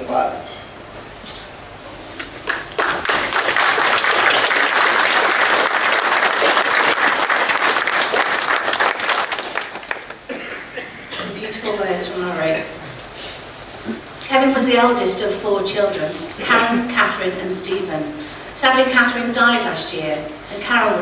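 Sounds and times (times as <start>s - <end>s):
congregation applauding: 2.4s - 10.3s.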